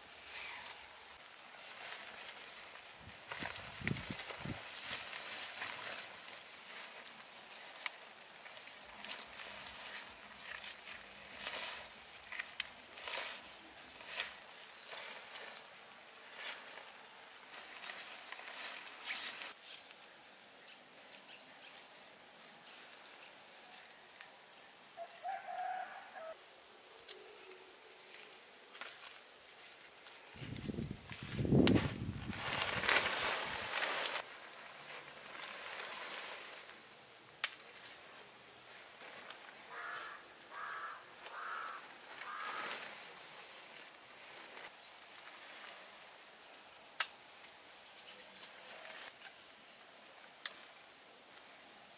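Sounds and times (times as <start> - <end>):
tent fabric rustling: 0.0 - 20.0, 28.2 - 46.4
faint high insect tone: 0.0 - 51.9
footsteps on grass: 1.5 - 15.6, 28.7 - 36.9, 37.6 - 46.0
bird calling: 39.7 - 43.1.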